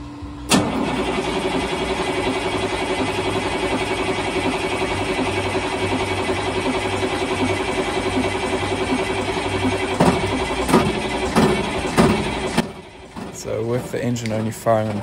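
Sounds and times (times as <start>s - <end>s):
diesel engine running unevenly: 0.0s - 15.0s.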